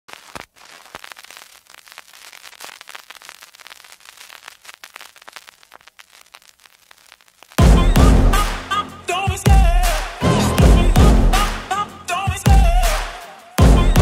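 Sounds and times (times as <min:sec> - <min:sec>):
crackling static: 0:00.0 - 0:10.2.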